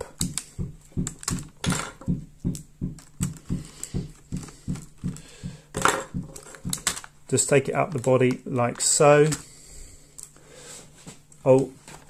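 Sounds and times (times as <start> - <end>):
rapid ticking with low thuds: 0.2 - 6.9.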